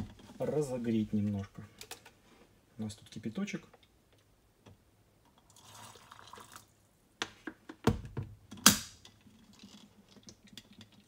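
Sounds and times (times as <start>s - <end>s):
boiling water pouring into teapot: 5.4s - 6.8s.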